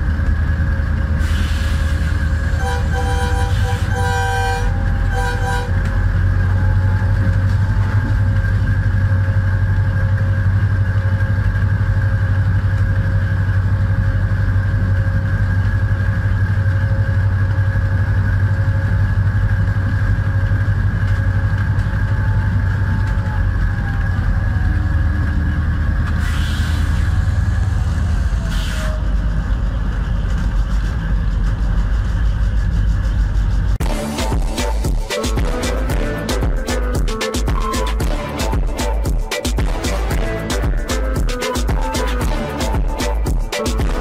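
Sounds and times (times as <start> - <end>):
diesel locomotive drone and whine: 0.0 - 44.0
locomotive horn blasts: 2.3 - 8.0, 33.8 - 44.0.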